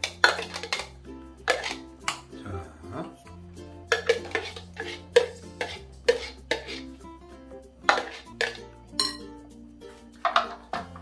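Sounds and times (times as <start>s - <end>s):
metal spoon clinking on bowls: 0.0s - 2.3s, 3.9s - 6.8s, 7.9s - 9.3s
light background music: 0.0s - 11.0s.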